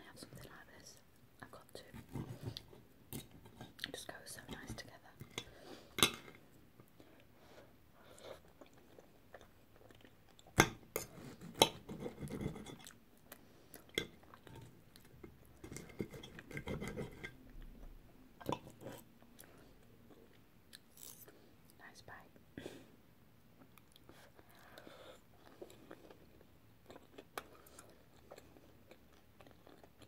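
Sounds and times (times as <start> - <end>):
chewing: 8.1 - 10.6, 23.6 - 30.0
knife and fork scraping a plate: 15.7 - 17.4.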